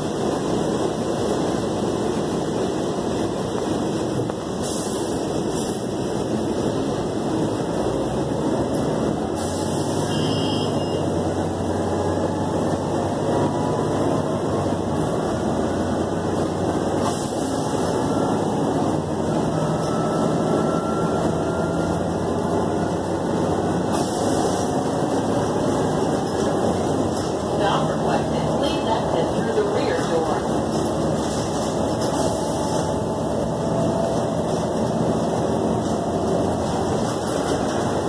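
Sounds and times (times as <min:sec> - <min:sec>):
bus engine and road noise: 0:00.0 - 0:38.0.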